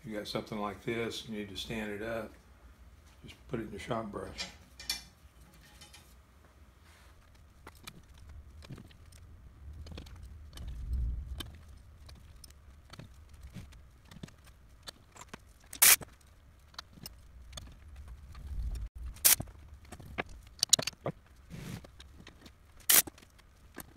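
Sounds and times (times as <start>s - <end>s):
metal tools and bolts clinking: 4.2s - 6.2s.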